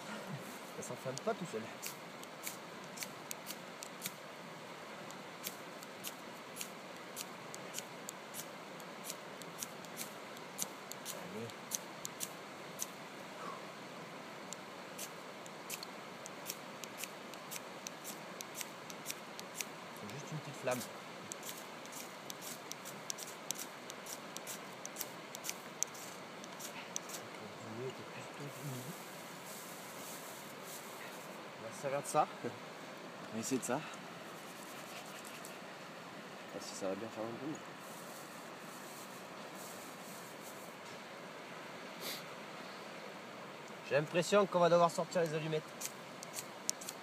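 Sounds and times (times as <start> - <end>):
knife scraping fire steel: 20.7 - 27.2.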